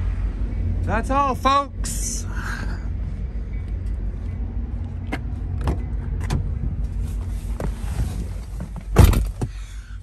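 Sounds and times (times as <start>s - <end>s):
steady low rumble: 0.0s - 10.0s
car door opening: 7.6s - 9.6s.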